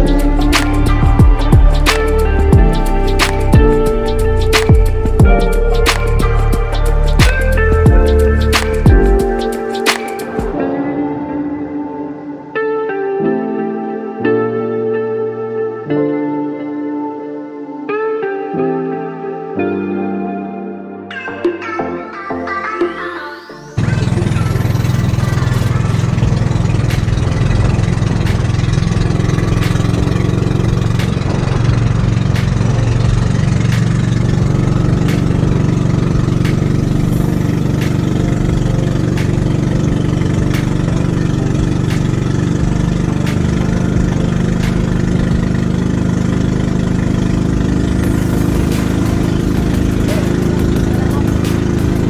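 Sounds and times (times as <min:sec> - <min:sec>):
boat engine running: 0:00.0 - 0:11.1, 0:23.8 - 0:52.0.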